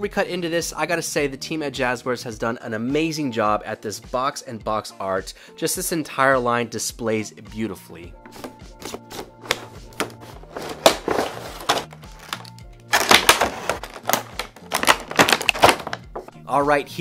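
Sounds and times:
plastic packaging crinkling: 9.1 - 16.3.

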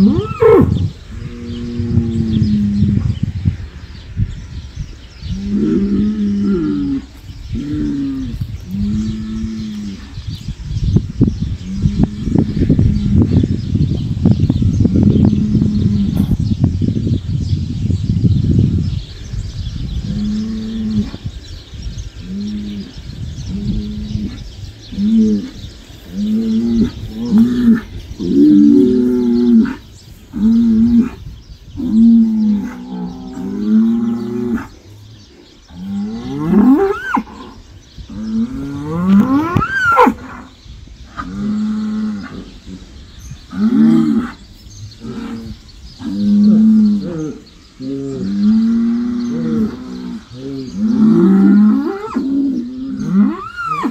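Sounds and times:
bulls bellowing: 22.2 - 53.9.

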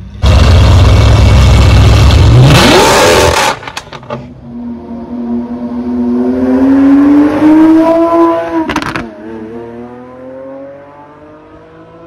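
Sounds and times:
car engine accelerating: 0.1 - 3.7, 4.4 - 12.0.

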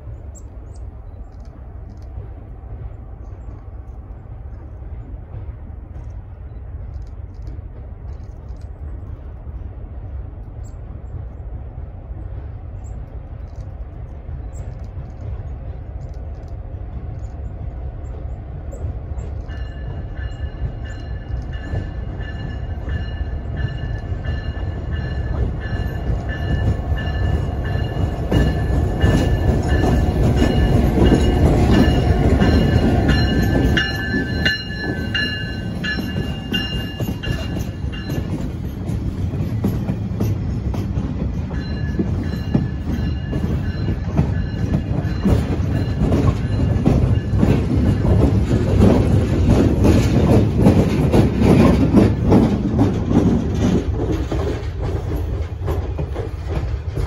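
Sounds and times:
diesel locomotives passing: 0.0 - 57.0
wheels clicking over rail joints: 18.7 - 57.0.

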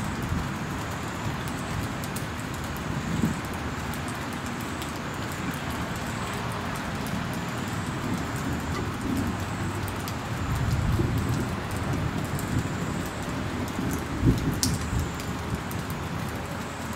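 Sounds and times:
wind buffeting microphone: 6.7 - 16.9.

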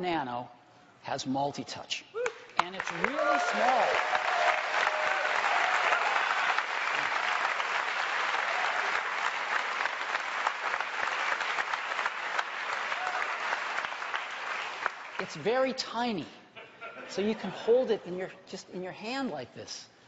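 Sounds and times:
audience applauding: 2.2 - 15.4.

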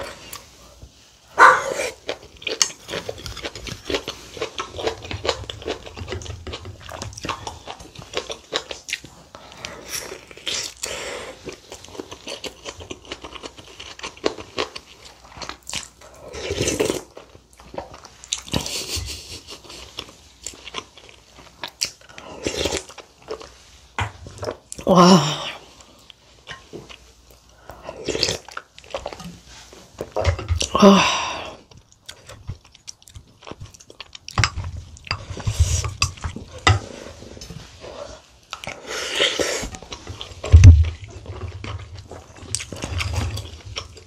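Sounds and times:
close chewing with wet mouth clicks: 1.9 - 18.9, 31.7 - 36.5.

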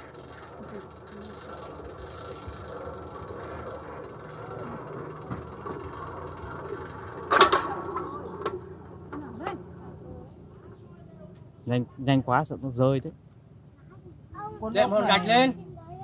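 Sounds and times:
loud rattling clatter: 0.0 - 9.3
faint mechanical whir: 0.0 - 16.0.

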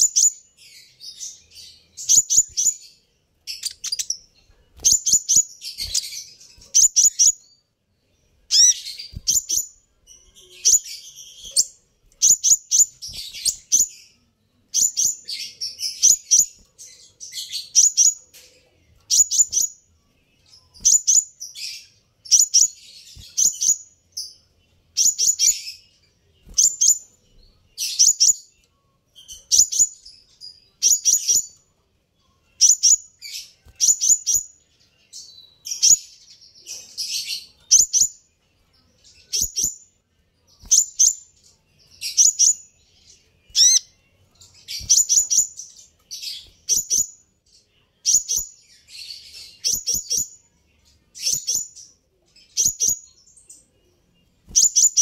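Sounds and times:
bird chipping calls: 8.5 - 9.8, 43.5 - 43.9.

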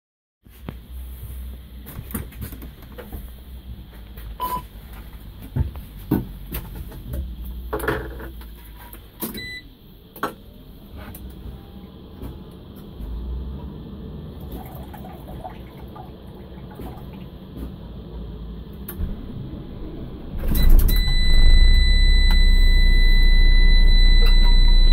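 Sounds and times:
short electronic beep: 20.5 - 24.9.

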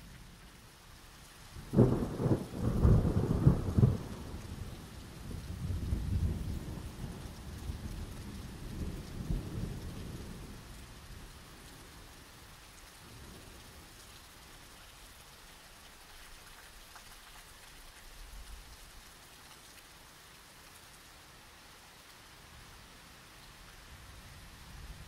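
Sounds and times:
steady rain hiss: 0.0 - 25.0
thunder rumbling: 1.7 - 10.5.

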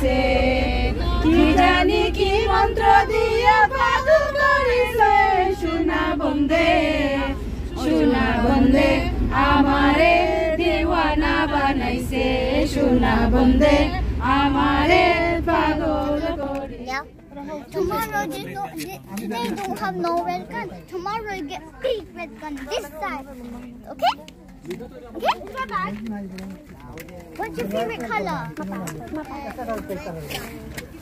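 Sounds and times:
women singing together: 0.0 - 17.8
low rumble of bus: 0.0 - 31.0.

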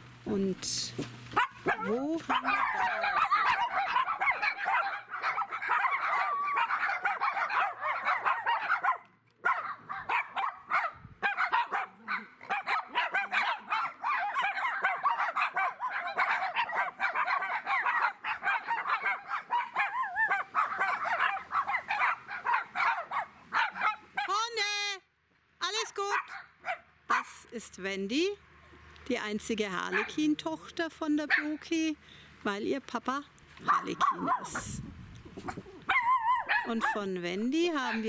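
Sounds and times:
dogs barking and yapping: 1.3 - 24.5, 26.0 - 27.4, 29.8 - 30.4, 31.2 - 31.6, 33.6 - 38.0.

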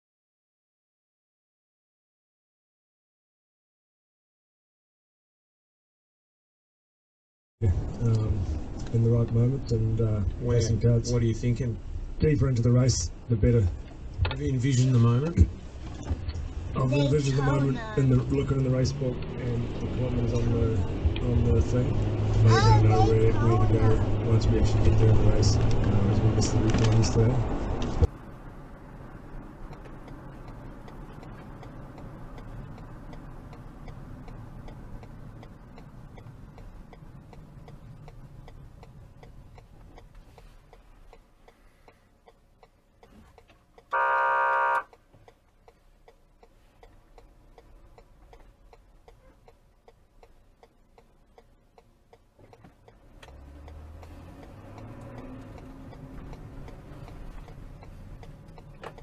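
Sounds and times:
road and engine rumble: 7.6 - 59.0
steady ticking: 29.3 - 59.0
car horn blast: 43.9 - 45.0.

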